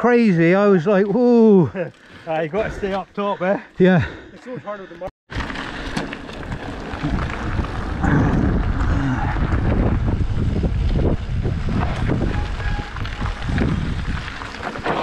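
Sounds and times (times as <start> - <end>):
tyres rumbling on rough ground: 0.2 - 15.0
bike knocks and rattles: 5.3 - 15.0
wind buffeting microphone: 6.3 - 14.8.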